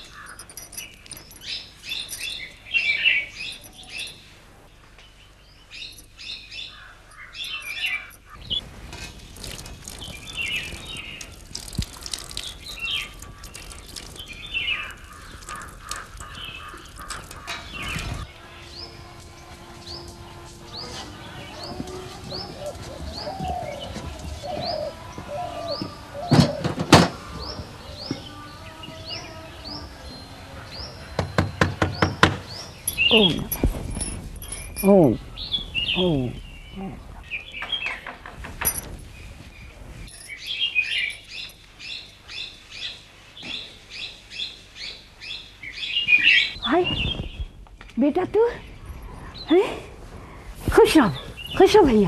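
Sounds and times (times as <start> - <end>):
bird chirping high: 5.8 - 8.6, 27.3 - 38.1
lower bird calls: 9.5 - 43.8.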